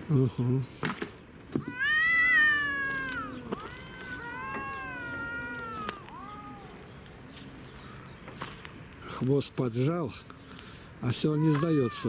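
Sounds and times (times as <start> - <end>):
cat yowling: 1.6 - 7.0, 11.4 - 12.0.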